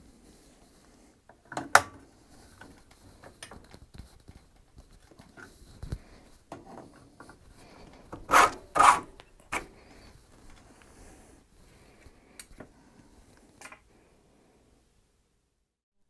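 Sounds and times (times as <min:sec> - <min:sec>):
small clicks and knocks: 0:01.3 - 0:08.3
plastic cover scraping: 0:07.6 - 0:09.7.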